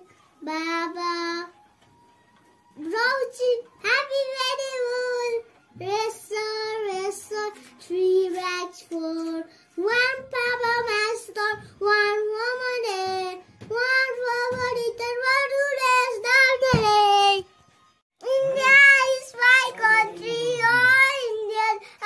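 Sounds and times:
boy singing: 18.2 - 21.9.

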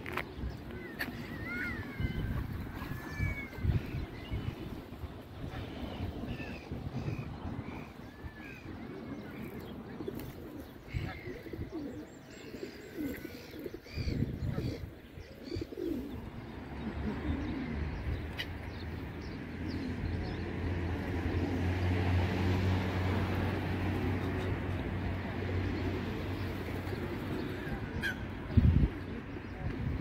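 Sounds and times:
pigeons cooing: 7.8 - 18.5, 23.5 - 30.0.

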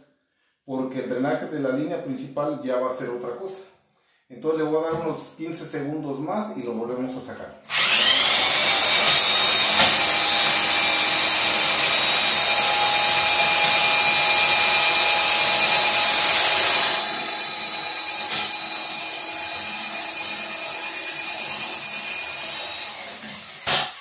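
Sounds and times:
electric drill whining: 7.7 - 24.0.

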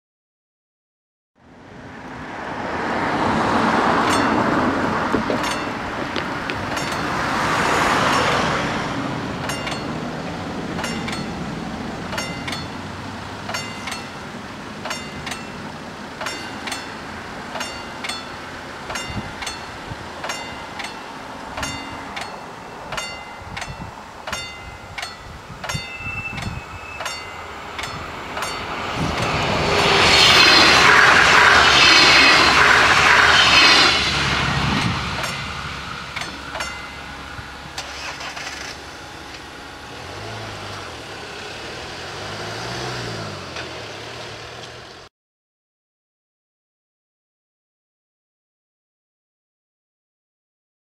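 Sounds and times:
vehicles driving past: 1.4 - 45.1
level crossing warning bell: 3.8 - 6.0, 6.6 - 31.5, 34.2 - 40.2.

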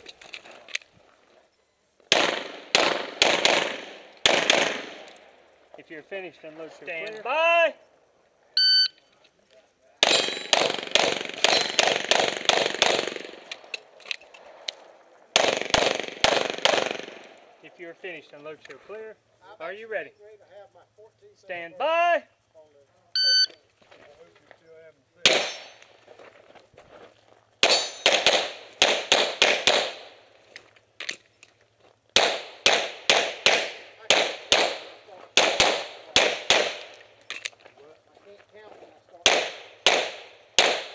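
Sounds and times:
pistol shots: 2.1 - 5.3, 10.0 - 13.8, 15.3 - 17.6, 25.2 - 25.8, 27.6 - 30.2, 32.2 - 37.1, 39.2 - 40.9.

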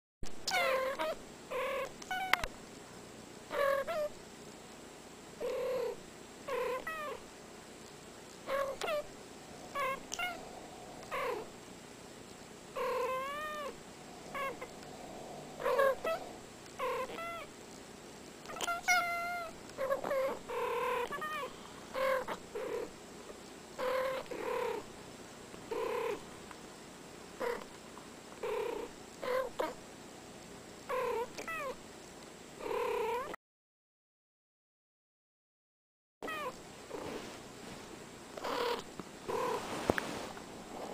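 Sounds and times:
cats meowing and chirping: 0.4 - 2.5, 3.5 - 4.2, 5.4 - 7.2, 8.5 - 11.5, 12.8 - 17.5, 18.4 - 22.9, 23.8 - 24.8, 30.9 - 31.8, 36.2 - 36.6.

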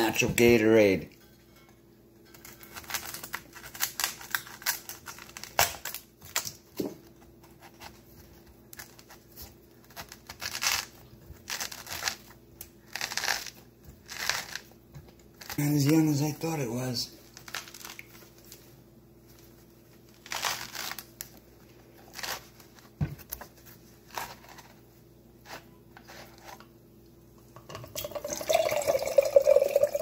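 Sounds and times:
coconut husk crunching and tearing: 8.7 - 14.8, 17.4 - 18.2, 20.1 - 21.4.

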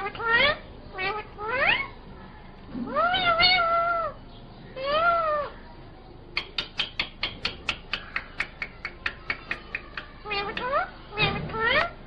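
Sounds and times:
parakeet meow-like calls: 0.0 - 2.0, 2.8 - 5.6, 8.8 - 12.0
sharp clicks: 6.4 - 10.7.

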